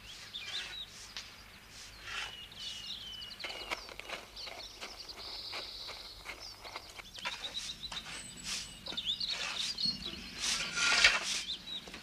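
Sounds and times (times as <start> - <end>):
songbirds chirping: 0.0 - 12.0
scrapes and knocks: 3.4 - 12.0.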